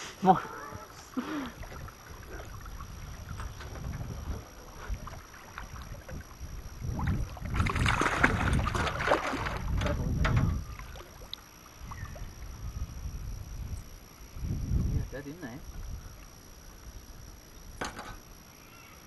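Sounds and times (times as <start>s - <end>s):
fish thrashing and splashing: 1.6s - 10.0s.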